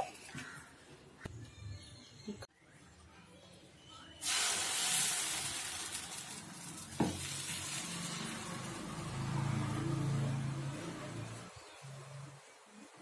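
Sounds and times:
batter sizzling on hot griddle: 4.2 - 9.6.

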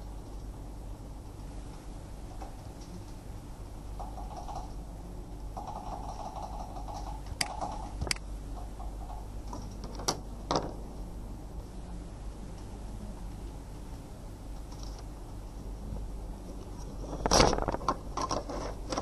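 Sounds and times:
low electrical hum: 0.0 - 19.0
soft rapid ticking: 1.2 - 9.6
computer mouse clicks: 4.0 - 4.8, 5.6 - 9.8.

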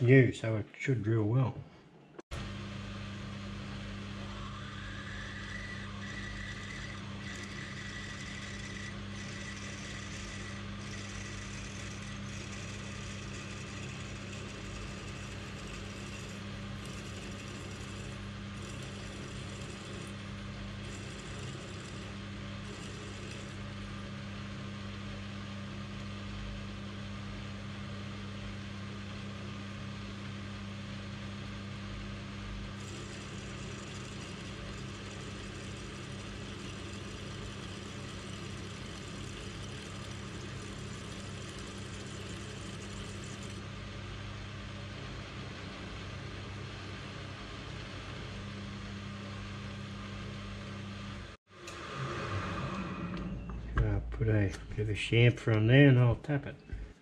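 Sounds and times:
low motor hum: 2.3 - 57.0
drill cutting steel on lathe: 4.2 - 23.8, 32.8 - 43.6.

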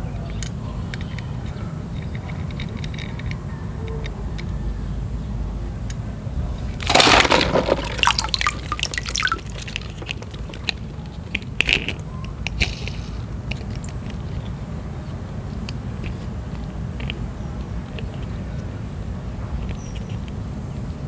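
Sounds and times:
light plastic clicks: 0.2 - 4.5, 15.5 - 18.7
water splashing and pouring: 6.8 - 10.8
water dripping: 6.8 - 11.0.

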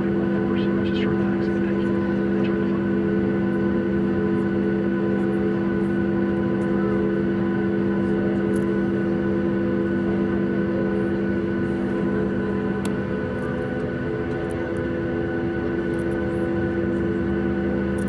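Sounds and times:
aircraft cabin drone: 0.0 - 18.0.

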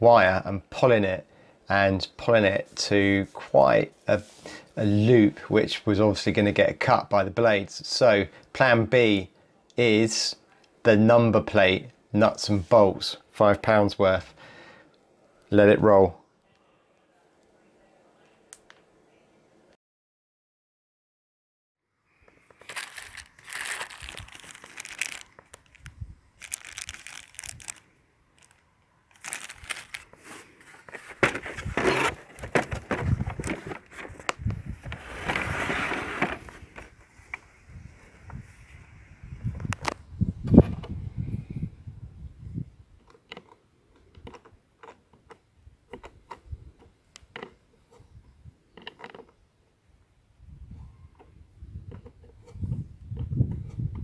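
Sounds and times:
plastic bag crinkling: 22.3 - 34.3.

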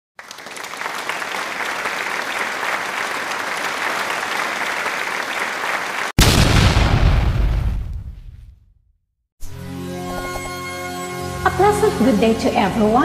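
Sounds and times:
crowd applause: 0.2 - 6.2
loud deep boom: 6.2 - 8.7.

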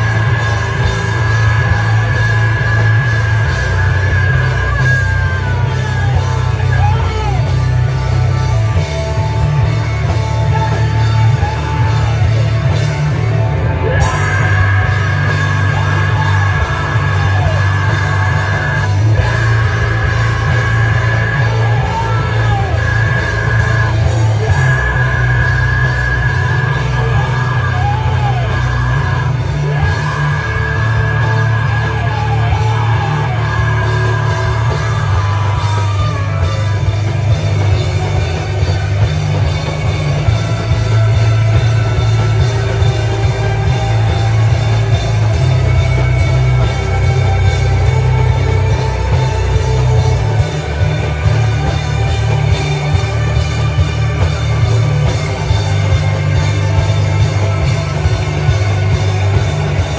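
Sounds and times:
live rock band playing: 0.0 - 59.9
singer yelling: 0.0 - 59.9.

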